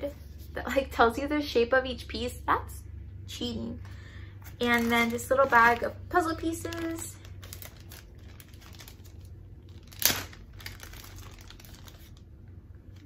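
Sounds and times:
plastic bag crinkling: 4.4s - 13.0s.

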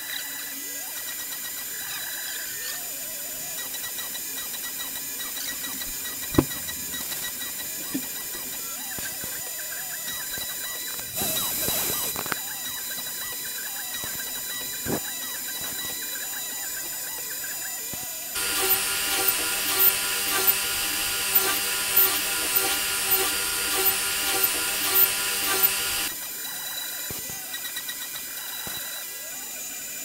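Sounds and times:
router spindle whining: 18.4s - 26.3s.

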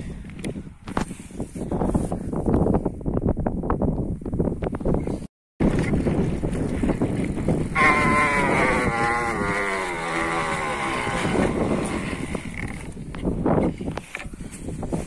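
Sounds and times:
wind on microphone: 0.0s - 15.0s
bike rattling over rough ground: 5.6s - 15.0s.

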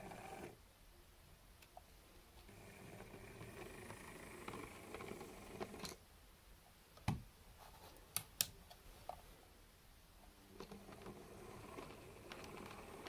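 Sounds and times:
model train motor whirring: 2.6s - 6.0s, 10.7s - 13.0s.

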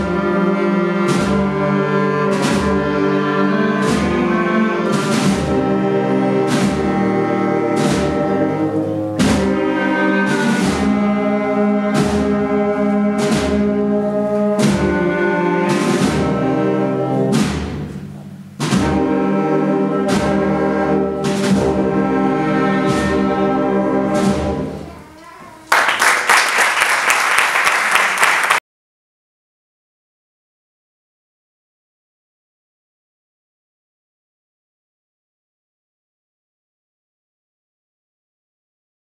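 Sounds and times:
wind band playing a march: 0.0s - 24.8s
drum strokes: 0.0s - 25.1s
audience applauding: 25.6s - 28.6s.

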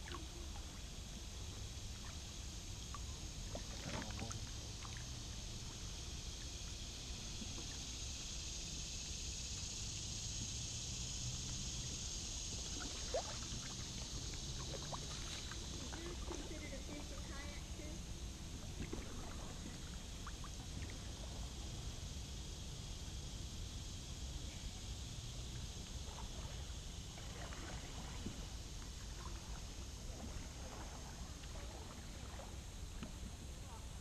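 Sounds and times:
steady high-pitched hiss: 0.0s - 34.0s
paddle splashing in water: 3.4s - 5.8s, 12.6s - 17.6s, 18.6s - 21.1s, 26.0s - 33.4s.

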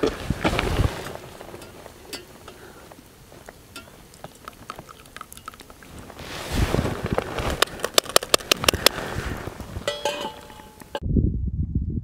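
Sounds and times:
small metal items clinking: 9.8s - 11.0s.

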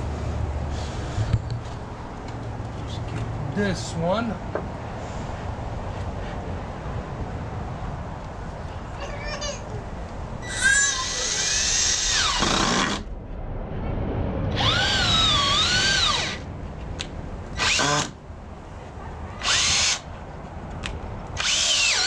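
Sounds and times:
cordless drill driving screws: 10.6s - 13.0s, 17.6s - 18.2s, 19.4s - 20.0s, 21.4s - 22.0s.

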